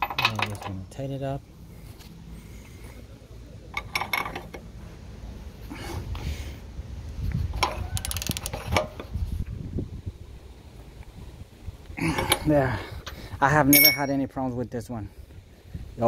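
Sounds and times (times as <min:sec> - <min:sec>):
wrench clicking and scraping: 0:07.6 - 0:09.1.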